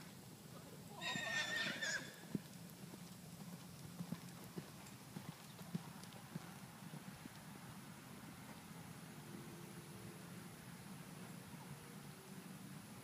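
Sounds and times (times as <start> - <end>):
horse hoofbeats on sand: 2.2 - 7.5.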